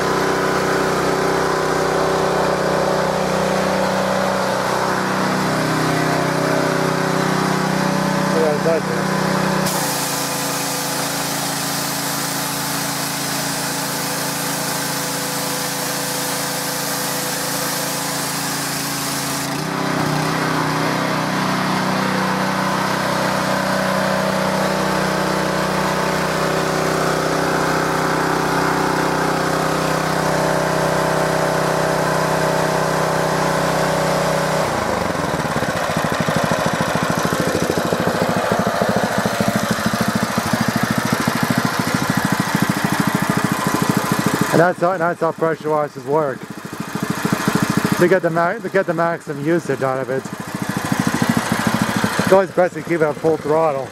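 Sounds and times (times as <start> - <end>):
pressure washer engine running: 0.0 - 53.9
high-pressure spray hissing: 9.6 - 19.7.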